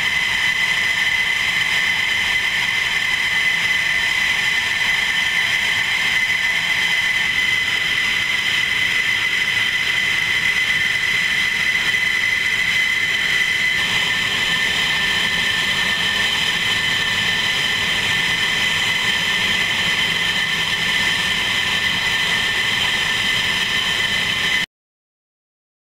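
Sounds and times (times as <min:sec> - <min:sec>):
jet engines idling: 0:00.0 - 0:24.7.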